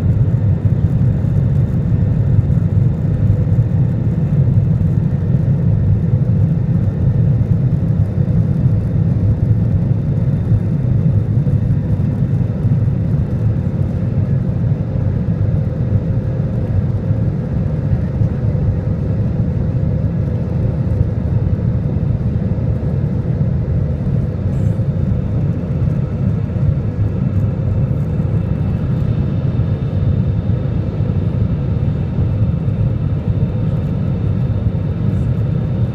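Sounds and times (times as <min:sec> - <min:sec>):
jet engine roar in cabin: 0:00.0 - 0:35.9.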